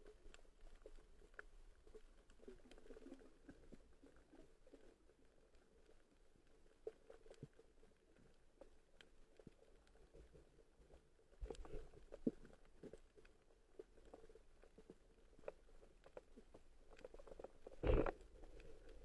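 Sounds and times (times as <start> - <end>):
underwater clicks and crackles: 0.0 - 19.0
low underwater rumble: 16.4 - 19.0.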